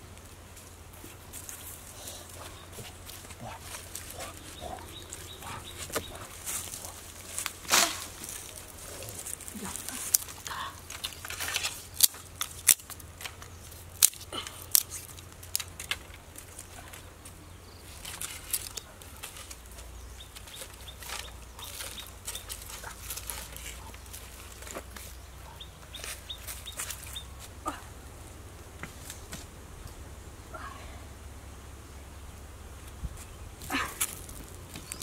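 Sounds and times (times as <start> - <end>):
dry sticks clicking and snapping: 3.1 - 17.4, 18.0 - 25.1.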